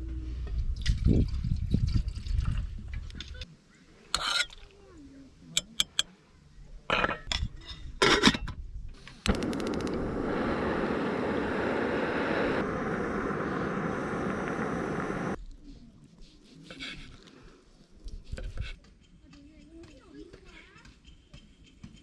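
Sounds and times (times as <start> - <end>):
gas burner hissing: 9.0 - 15.4
igniter clicks: 9.2 - 15.4.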